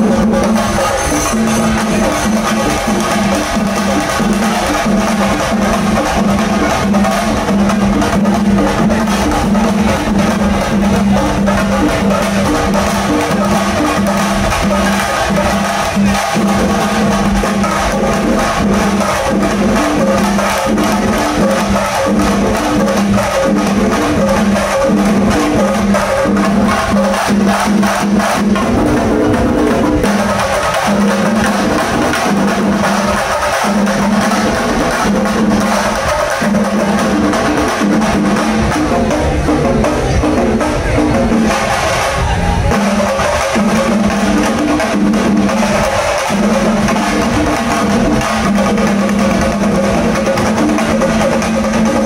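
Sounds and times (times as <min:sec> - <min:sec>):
drums in fast rhythm: 0:00.0 - 0:52.0.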